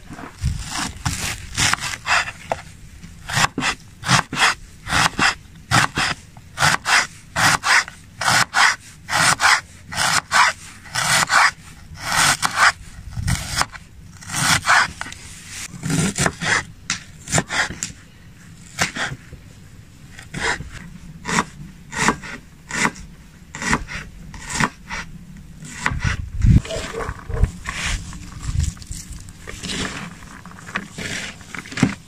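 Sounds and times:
knife slicing onion on wooden board: 3.3s - 13.7s, 15.8s - 17.9s, 18.7s - 19.2s, 21.2s - 25.0s.

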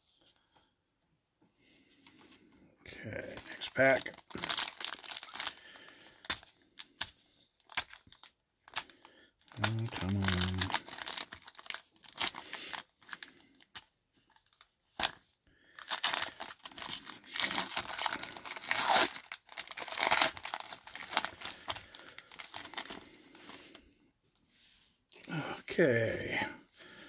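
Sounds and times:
foil wrapper crinkling and tearing: 3.4s - 23.1s.

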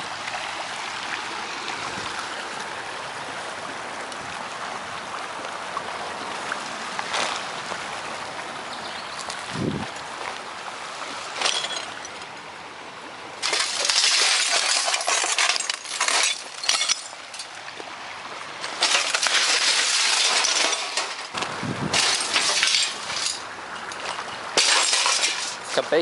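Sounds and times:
glass shards crunching and clinking: 11.4s - 12.3s, 13.4s - 17.6s, 18.6s - 25.8s.

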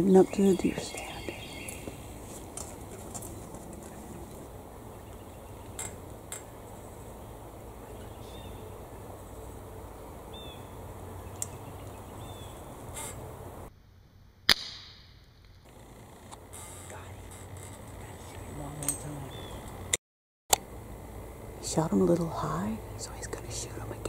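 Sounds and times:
faint bird chirps: 0.1s - 2.0s.

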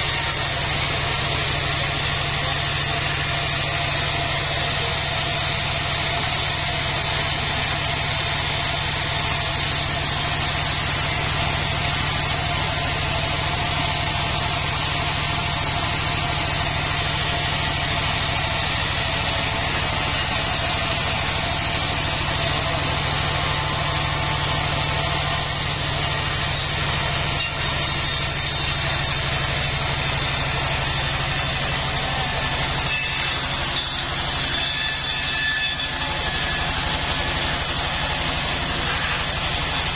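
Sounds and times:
band sawmill humming: 0.0s - 39.9s.

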